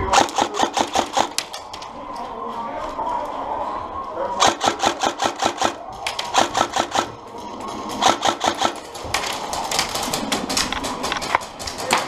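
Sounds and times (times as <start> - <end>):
airsoft rifle firing: 0.0 - 1.6, 4.4 - 7.2, 8.0 - 9.0.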